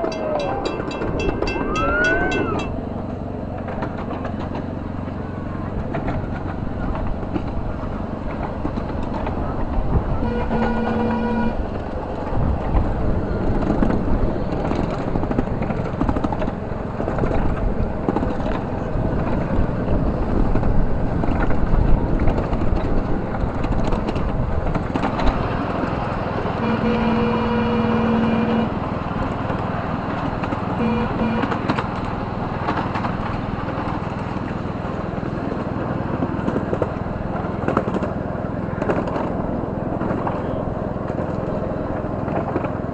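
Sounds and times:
locomotive horn tooting: 0:00.0 - 0:02.8, 0:10.1 - 0:11.8, 0:26.5 - 0:29.0, 0:30.7 - 0:31.8
miniature train rumbling on track: 0:00.0 - 0:42.9.

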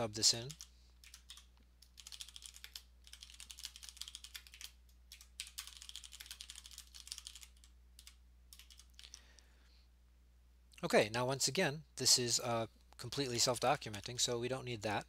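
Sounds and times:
faint low hum: 0:00.0 - 0:15.0
typing on keyboard: 0:00.4 - 0:09.2.

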